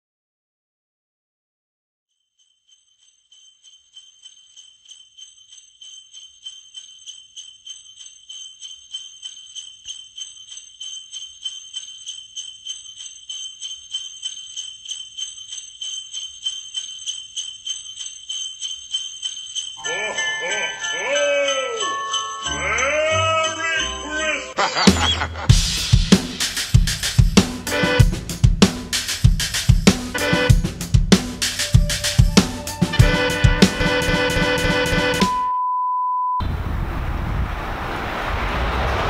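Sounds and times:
sleigh bells jingling: 2.1s - 35.4s.

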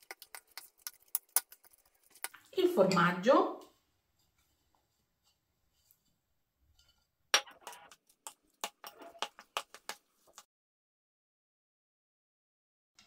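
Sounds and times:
metal spoon scraping steel bowl: 0.0s - 3.1s, 4.3s - 9.9s.

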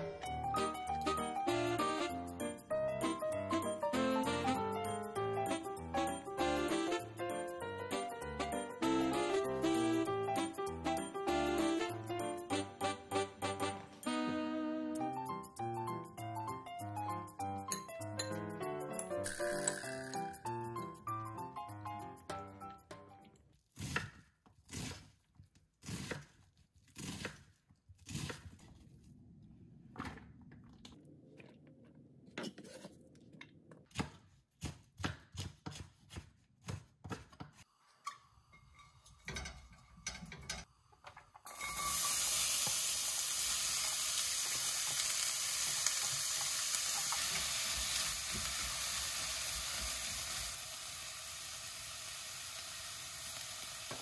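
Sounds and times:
utensils and cookware clattering: 17.6s - 20.9s, 38.0s - 42.8s
food sizzling in a hot pan: 19.2s - 20.5s, 41.5s - 54.0s.

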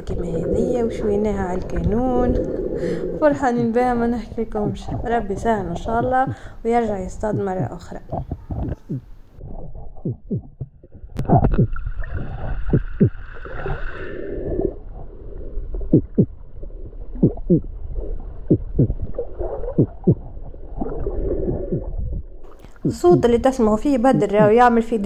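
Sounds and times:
underwater gurgling and knocking: 0.0s - 23.4s.

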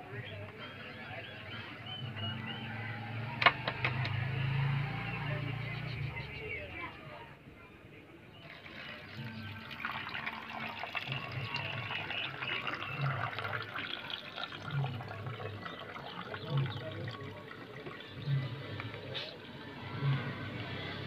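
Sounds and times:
water crackling and bubbling: 8.4s - 19.2s.

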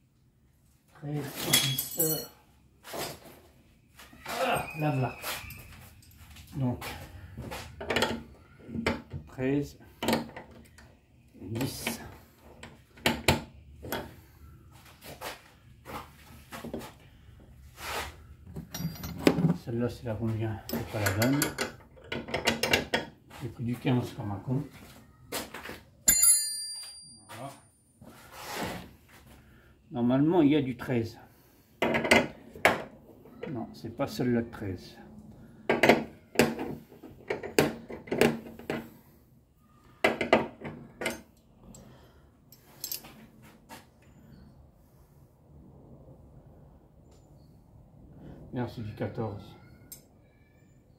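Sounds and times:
metal hand tools clinking: 1.4s - 2.4s, 18.7s - 19.3s, 26.1s - 27.3s, 42.5s - 43.1s
metal spanner clinking: 18.6s - 19.4s, 20.7s - 23.0s, 26.1s - 27.3s, 42.5s - 43.1s.

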